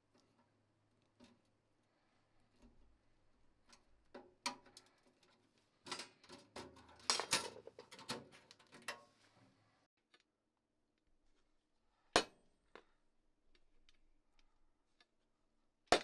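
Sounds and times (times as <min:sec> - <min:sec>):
sheet metal clicks and clatter: 0:03.7 - 0:09.0.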